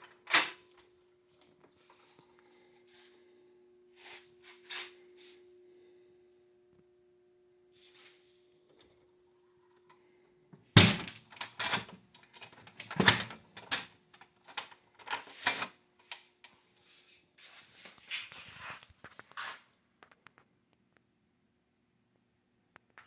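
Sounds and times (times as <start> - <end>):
faint steady hum: 0.0 - 18.3
soft rustle: 16.8 - 19.7.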